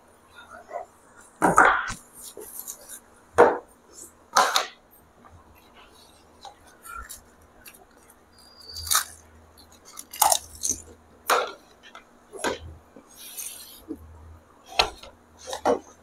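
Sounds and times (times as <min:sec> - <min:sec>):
crisp shells cracking and crunching: 0:07.0 - 0:11.0.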